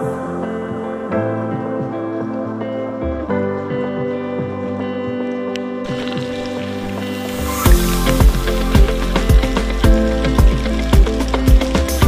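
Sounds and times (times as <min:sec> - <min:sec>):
sustained music notes: 0:04.6 - 0:11.5
kick drum beat: 0:07.7 - 0:11.8.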